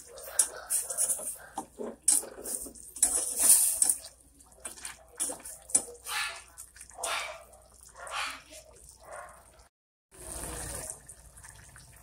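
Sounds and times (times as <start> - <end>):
utensil scraping metal pot: 0.0 - 7.5.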